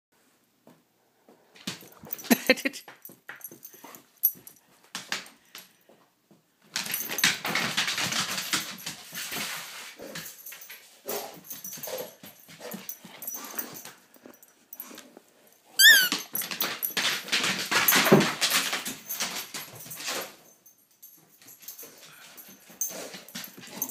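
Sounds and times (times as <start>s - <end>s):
dog yelping: 15.8s - 16.3s.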